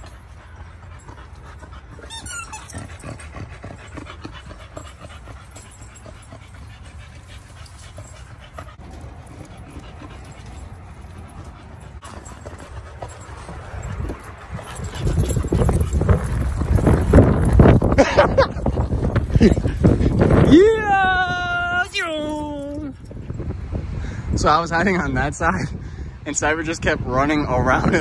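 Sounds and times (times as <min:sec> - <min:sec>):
dog panting: 0:00.0 - 0:20.5
high squeak: 0:01.9 - 0:03.1.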